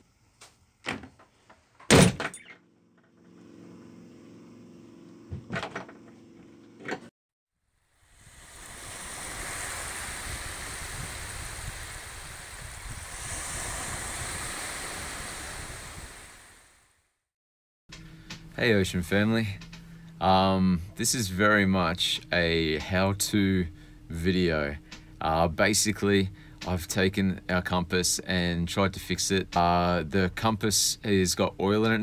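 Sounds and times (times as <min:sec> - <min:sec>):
cabin door slamming: 0:01.8 - 0:02.5
low hum: 0:07.8 - 0:16.8, 0:17.9 - 0:30.4
steady rushing noise: 0:08.0 - 0:16.7.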